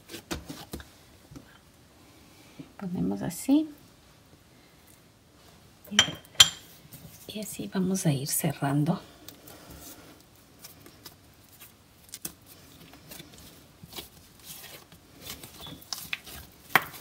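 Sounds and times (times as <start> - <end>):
dough patting on countertop: 16.0 - 17.0.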